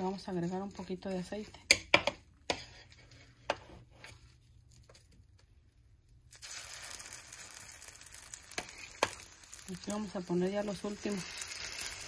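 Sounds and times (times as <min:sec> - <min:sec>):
hot oil sizzling in a frying pan: 0:06.3 - 0:12.0.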